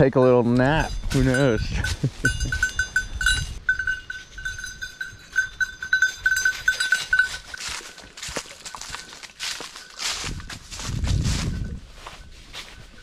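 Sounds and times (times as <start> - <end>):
small metal bell jingling: 0.0 - 13.0
footsteps in dry leaves: 6.2 - 13.0.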